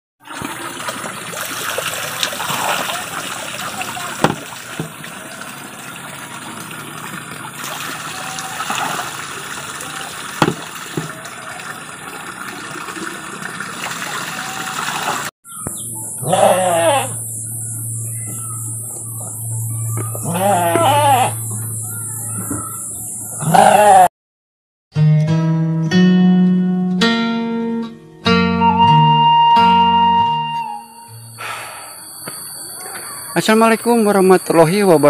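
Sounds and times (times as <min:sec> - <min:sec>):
water splashing into stream: 0:00.2 - 0:15.3
goat bleating: 0:08.0 - 0:08.8, 0:16.2 - 0:17.2, 0:20.2 - 0:21.5, 0:23.4 - 0:24.1.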